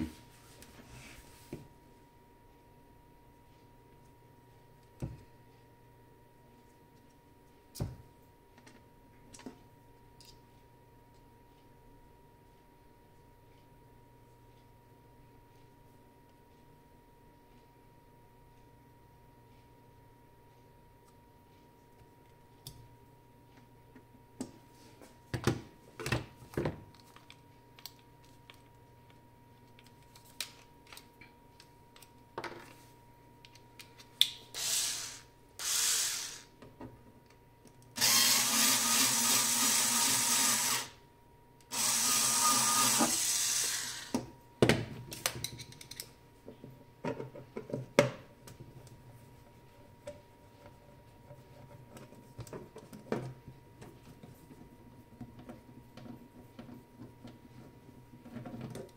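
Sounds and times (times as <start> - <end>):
cordless screwdriver running: 34.6 - 36.5, 38.0 - 40.9, 41.7 - 44.2.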